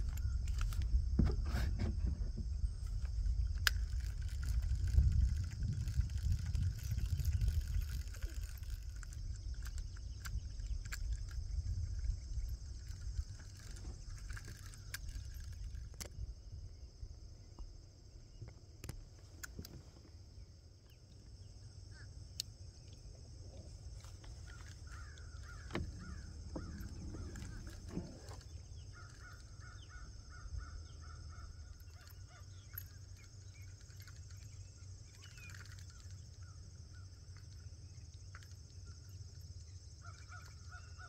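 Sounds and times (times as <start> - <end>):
crows cawing: 24.5 - 27.8.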